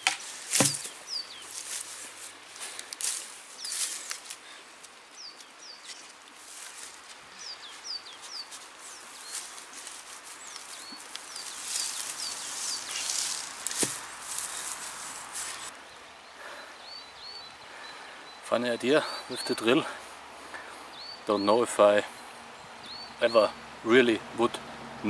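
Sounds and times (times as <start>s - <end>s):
sharp knock: 0.0s - 0.9s
bird chirping: 0.6s - 1.6s, 7.3s - 9.5s, 10.4s - 14.8s, 15.4s - 19.9s, 20.5s - 23.6s.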